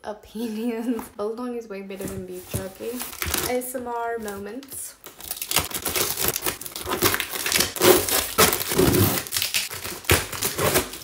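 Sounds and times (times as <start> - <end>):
cardboard box crinkling and tearing: 2.5 - 3.6, 5.0 - 11.0.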